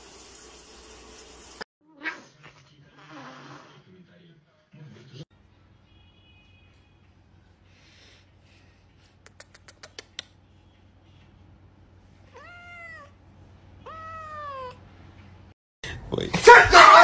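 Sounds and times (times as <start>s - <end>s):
kitten meowing: 12.3s - 13.1s, 13.8s - 14.8s.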